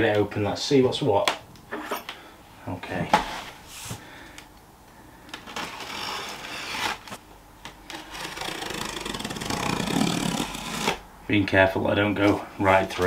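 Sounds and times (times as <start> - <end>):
knife slitting packing tape: 5.3 - 7.2, 7.9 - 11.0.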